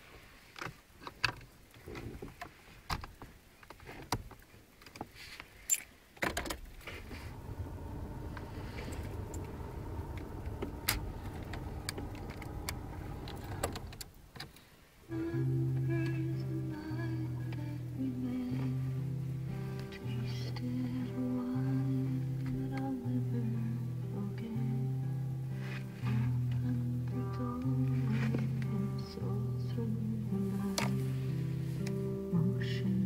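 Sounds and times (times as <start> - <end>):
steady low hum: 6.6 - 14.3.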